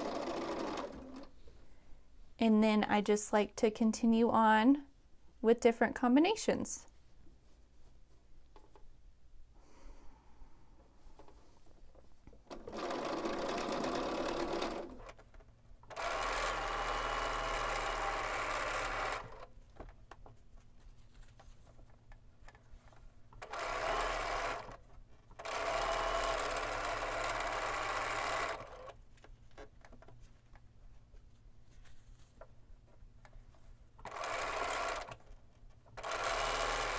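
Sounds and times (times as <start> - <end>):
sewing machine stitching: 0.0 - 1.3, 12.5 - 19.5, 23.4 - 29.0, 34.0 - 36.9.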